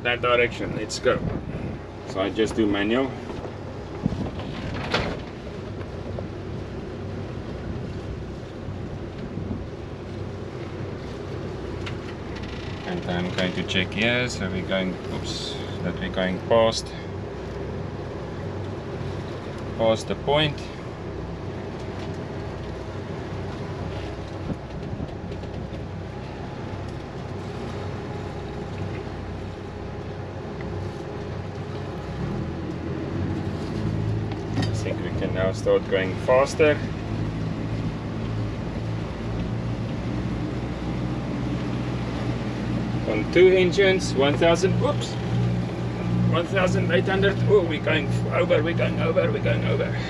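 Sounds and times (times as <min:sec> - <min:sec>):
wind rushing over microphone: 0:00.0 - 0:06.8, 0:07.5 - 0:10.3
low engine hum: 0:00.0 - 0:50.0
water noise: 0:00.0 - 0:50.0.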